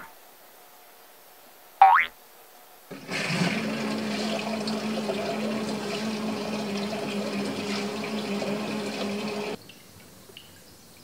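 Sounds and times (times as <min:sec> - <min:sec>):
machine hum: 0:02.9 - 0:09.6
water pouring into washing machine: 0:02.9 - 0:09.6.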